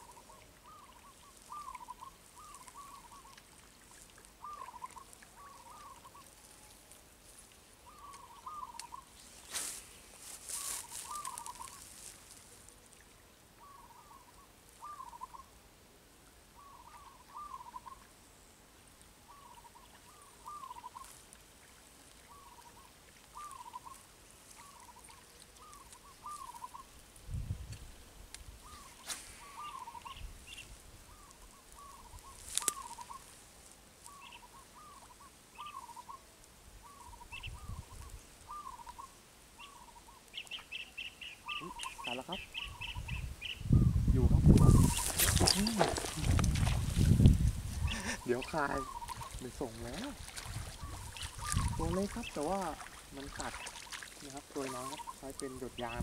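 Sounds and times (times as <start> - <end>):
bird calling in curling notes: 7.9 - 9.1, 16.6 - 18.1, 22.3 - 24.0, 28.6 - 33.3, 36.8 - 43.7, 47.9 - 50.0
brief rustle: 28.8 - 29.5, 32.3 - 33.2, 44.5 - 47.3.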